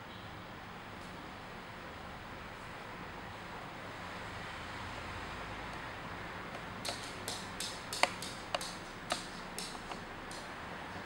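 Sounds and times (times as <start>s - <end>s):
parrot tapping and clicking: 6.5s - 10.6s.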